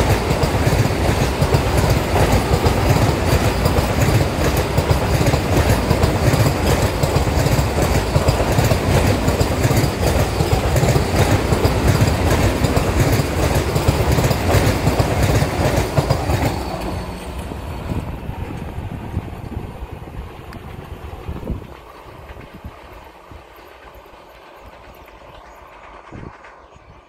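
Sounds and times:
wheels clattering over rails: 0.0 - 18.7
train rushing past: 0.0 - 27.0.

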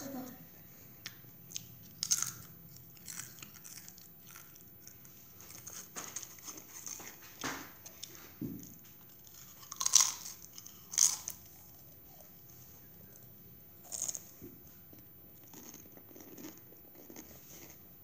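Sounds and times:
quiet chewing: 1.0 - 17.9
chip crunching: 1.5 - 7.4, 9.2 - 11.5, 13.8 - 14.4, 15.4 - 17.8.

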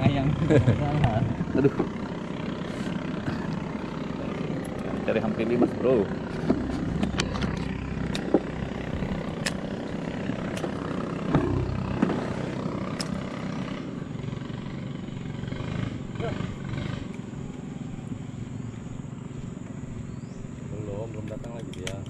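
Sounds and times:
small boat motor running: 0.0 - 22.0
sharp clicks and knocks: 21.3 - 22.0.

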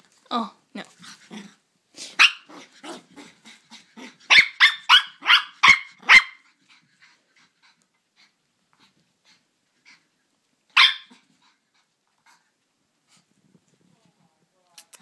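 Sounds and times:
puppy barking in high yaps: 2.2 - 2.5, 4.3 - 6.4, 10.7 - 11.2.

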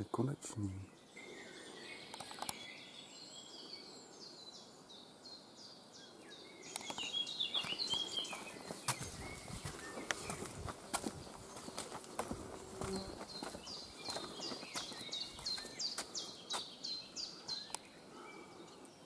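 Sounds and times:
small birds singing: 0.0 - 19.0
footstep on wooden planks: 7.6 - 16.7
footsteps: 7.6 - 16.7.

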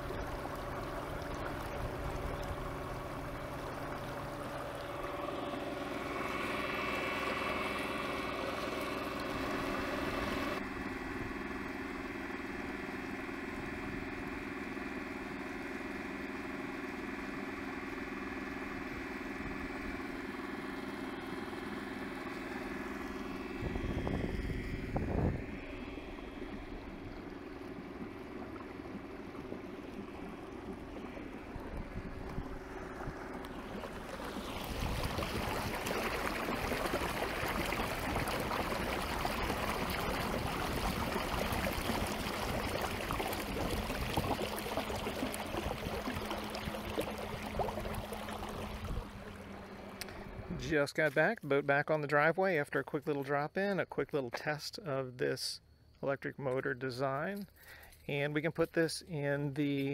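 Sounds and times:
water splashing along a hull: 0.0 - 52.2
electric motor whine: 1.2 - 38.8.

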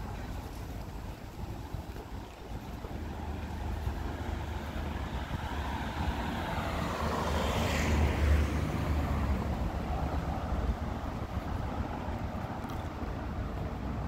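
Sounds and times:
small car driving past: 3.7 - 10.4.

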